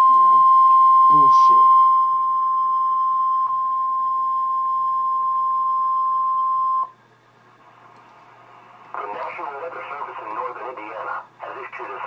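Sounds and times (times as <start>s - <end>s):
weather radio alarm tone: 0.0s - 3.4s.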